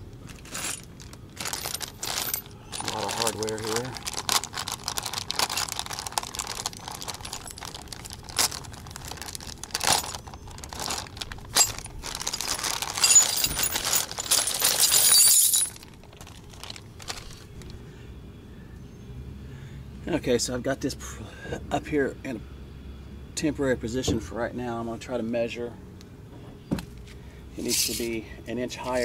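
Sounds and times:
plastic bag crinkling: 0:00.1 - 0:17.7
metal parts clinking: 0:00.3 - 0:17.7, 0:27.6 - 0:28.2.

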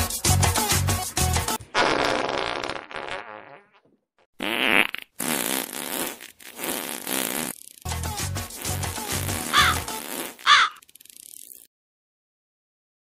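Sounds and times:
buzzing farts: 0:01.7 - 0:07.9, 0:08.6 - 0:11.7.

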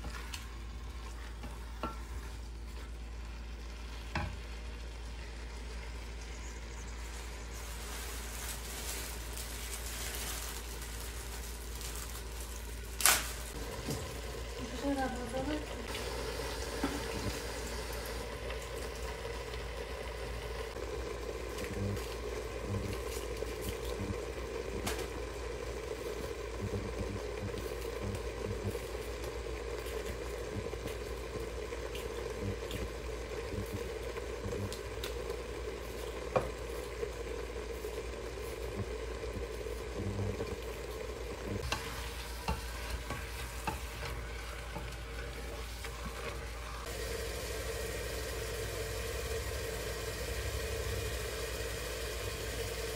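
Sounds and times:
onions and meat sizzling: 0:00.0 - 0:52.9
wooden spoon stirring: 0:25.8 - 0:46.9.

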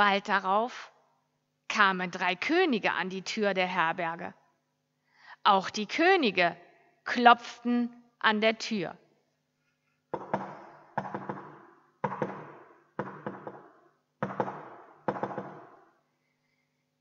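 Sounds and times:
knocking on wooden door: 0:10.1 - 0:15.8.

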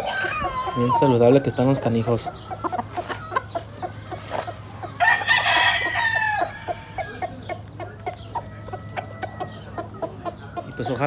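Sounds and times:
rooster crowing: 0:00.0 - 0:01.9, 0:05.0 - 0:07.5
soft clucks: 0:00.3 - 0:05.0.

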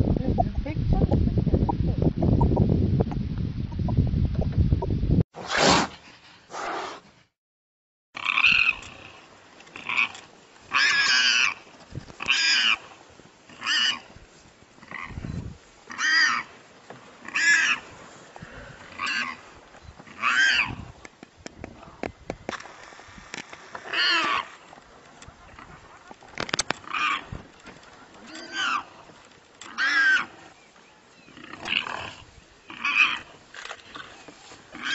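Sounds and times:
warthog squealing: 0:20.1 - 0:20.8, 0:28.2 - 0:29.0, 0:29.7 - 0:30.4.

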